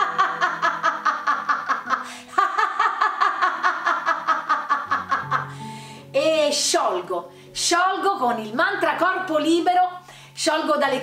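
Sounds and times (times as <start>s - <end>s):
woman laughing hard: 0.0s - 5.6s
breath: 5.5s - 6.1s, 10.0s - 10.4s.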